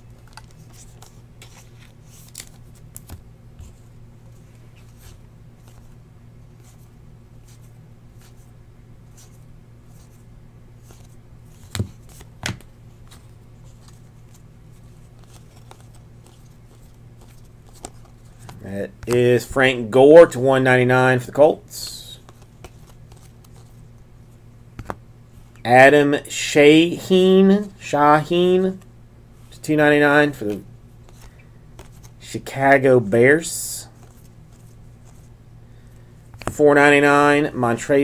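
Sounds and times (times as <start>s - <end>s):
steady low hum: 0.0s - 38.0s
cards sliding and clicking: 0.2s - 3.8s, 10.8s - 19.2s, 22.2s - 23.8s, 30.5s - 32.2s, 36.3s - 36.6s.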